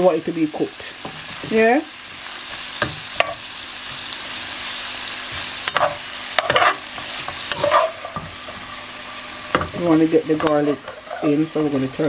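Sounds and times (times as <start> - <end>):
vegetables sizzling in a frying pan: 0.0 - 12.0
utensil scraping a pan: 5.3 - 12.0.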